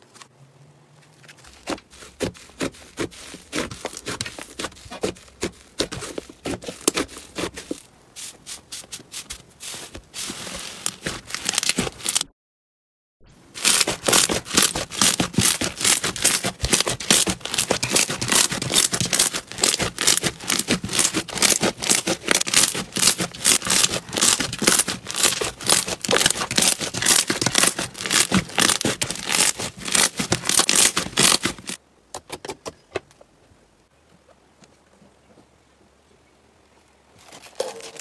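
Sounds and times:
slime crackling and popping: 10.8 - 12.3, 13.6 - 31.8.

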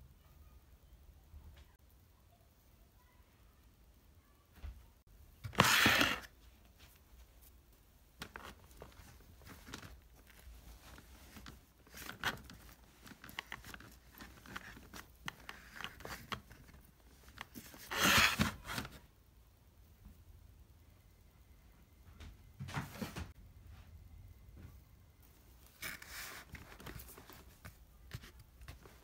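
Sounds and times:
cloth rustling: 5.4 - 18.9
drawer sliding on runners: 5.5 - 6.3, 17.9 - 18.8.

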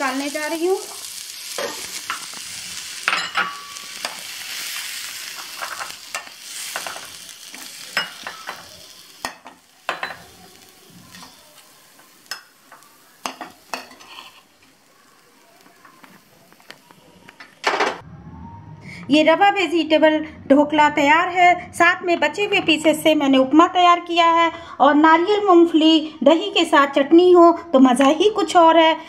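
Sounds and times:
pan sizzling: 0.0 - 18.0
metal spatula scraping steel pan: 13.3 - 14.5.

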